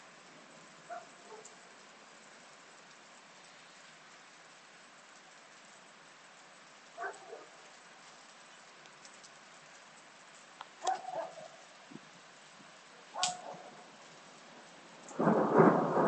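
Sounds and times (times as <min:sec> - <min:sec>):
rain hiss: 0:00.0 - 0:16.0
dog barking: 0:00.9 - 0:01.5, 0:07.0 - 0:07.6, 0:10.8 - 0:11.6, 0:13.1 - 0:13.8.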